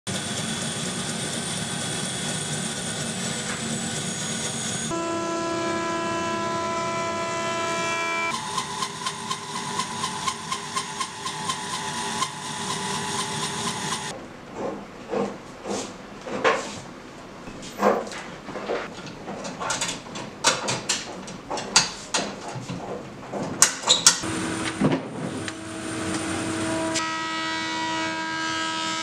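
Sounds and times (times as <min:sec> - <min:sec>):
band saw cutting: 0:00.1 - 0:14.1, 0:24.2 - 0:29.0
jointer whining: 0:02.2 - 0:14.1, 0:23.9 - 0:28.3.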